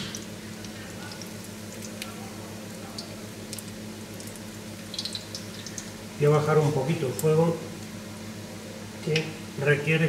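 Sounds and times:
doughnuts sizzling in oil: 0.0 - 10.0
steady low hum: 0.0 - 10.0.

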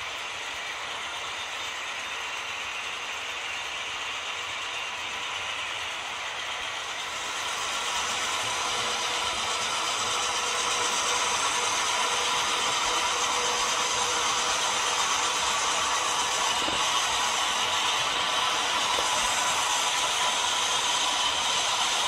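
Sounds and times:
model train motors whirring: 0.0 - 22.0
train cars clattering on rails: 4.8 - 22.0.

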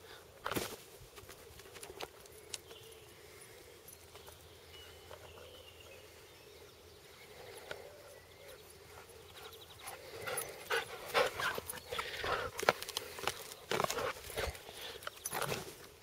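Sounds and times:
dog breathing: 7.4 - 15.2.

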